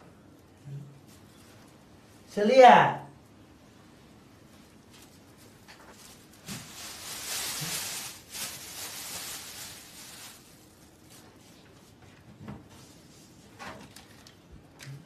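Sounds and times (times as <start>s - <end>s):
plastic bag rustling: 4.9s - 11.8s.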